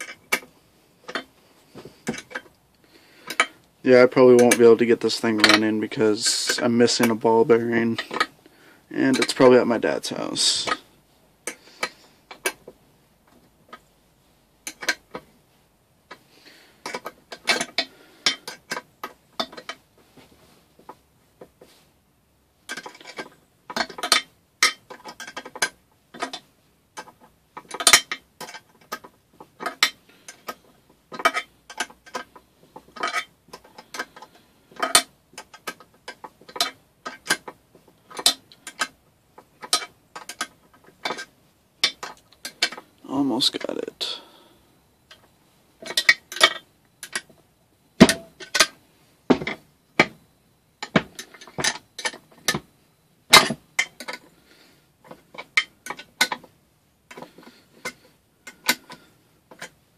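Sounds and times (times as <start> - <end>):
metal tools clicking and clinking: 0.0 - 1.3, 2.0 - 2.6, 4.3 - 5.7, 16.8 - 19.8, 22.7 - 26.4, 27.0 - 42.9, 45.1 - 47.4, 48.0 - 50.2, 50.8 - 52.6, 53.3 - 54.3, 55.0 - 56.5.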